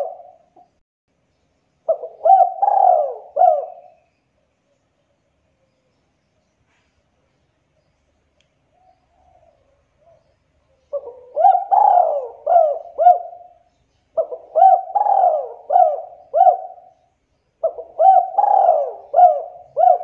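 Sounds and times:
dove cooing: 0:00.0 - 0:00.7, 0:01.9 - 0:04.0, 0:08.8 - 0:20.0.

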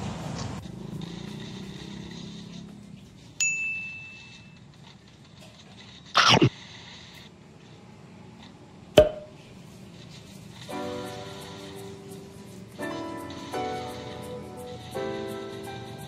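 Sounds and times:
sharp knock: 0:09.0 - 0:09.4.

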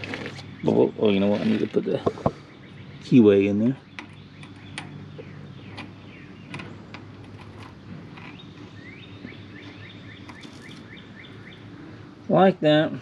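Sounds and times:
bird chirping: 0:00.1 - 0:12.2
light metal clicks: 0:03.9 - 0:08.4.

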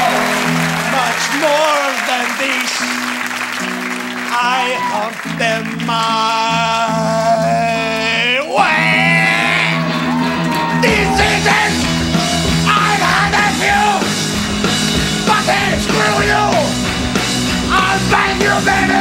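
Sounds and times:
electric guitar: 0:00.0 - 0:19.0
person yelling and singing: 0:04.3 - 0:14.1, 0:15.2 - 0:16.8, 0:17.7 - 0:19.0
drum kit: 0:09.7 - 0:19.0.

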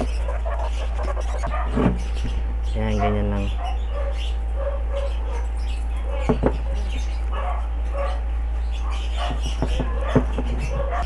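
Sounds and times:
steady low hum: 0:00.0 - 0:11.0
dog barking: 0:01.4 - 0:01.8, 0:02.9 - 0:11.0
plastic crate knocks: 0:06.2 - 0:06.6, 0:09.4 - 0:11.0.

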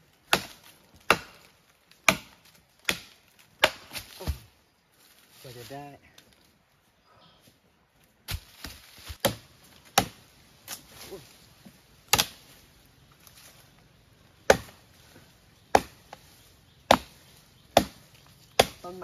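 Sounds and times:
machete chopping dry wood: 0:00.2 - 0:04.5, 0:08.3 - 0:11.0, 0:12.1 - 0:12.6, 0:14.4 - 0:14.9, 0:15.6 - 0:19.0.

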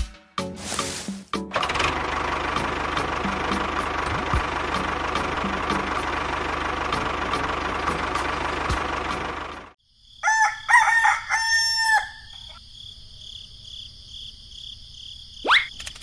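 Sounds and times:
crickets chirring: 0:09.8 - 0:16.0
rooster crowing: 0:10.2 - 0:12.6.

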